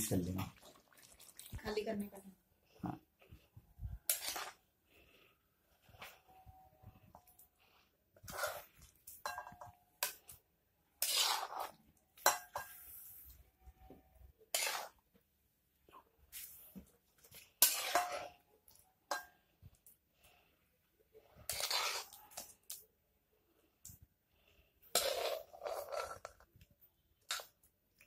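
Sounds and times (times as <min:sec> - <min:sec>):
metal spoon scraping a pan: 0:04.0 - 0:04.7, 0:08.2 - 0:15.1, 0:16.4 - 0:19.5, 0:21.2 - 0:22.7, 0:24.8 - 0:26.5, 0:27.2 - 0:27.6.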